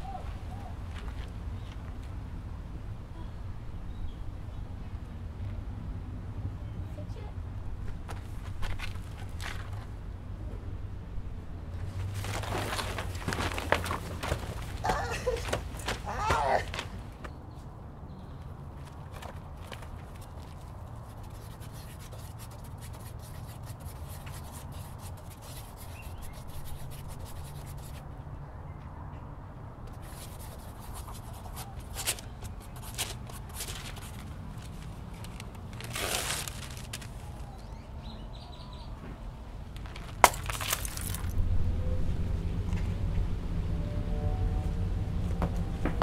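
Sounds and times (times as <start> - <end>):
paper rustling: 12.0 - 17.0, 30.0 - 37.3
low outdoor rumble: 38.3 - 46.0.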